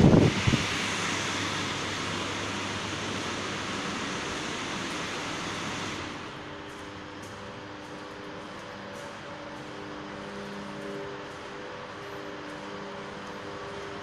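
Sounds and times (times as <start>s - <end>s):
steady rushing noise: 0.0s - 8.3s.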